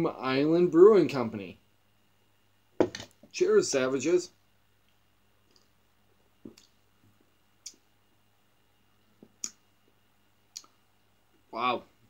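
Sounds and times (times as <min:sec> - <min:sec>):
lip smacks and mouth clicks: 0:04.8 - 0:05.8, 0:06.5 - 0:06.8, 0:07.6 - 0:07.9, 0:09.2 - 0:09.6, 0:10.5 - 0:10.8.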